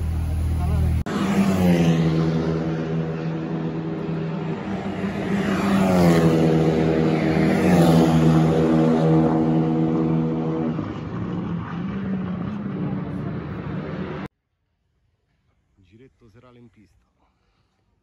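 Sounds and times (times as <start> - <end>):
race cars passing at speed: 1.0 - 14.3.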